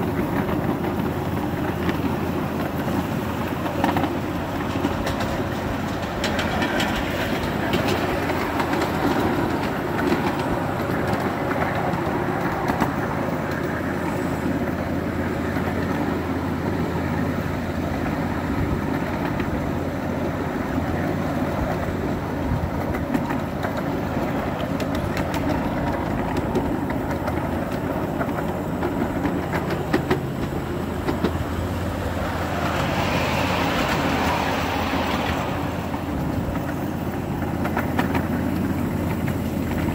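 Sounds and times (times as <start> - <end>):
model trains rumbling and whirring: 0.0 - 39.9
wheels clicking over rail joints: 0.0 - 39.9.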